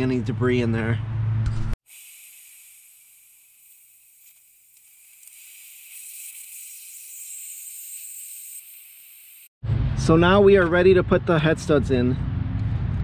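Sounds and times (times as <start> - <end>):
compressed air hissing from blow gun: 1.9 - 9.5.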